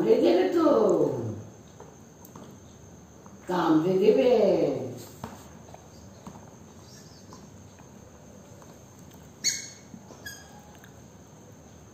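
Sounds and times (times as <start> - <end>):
rubber squeaky toy squeaking: 9.4 - 10.6.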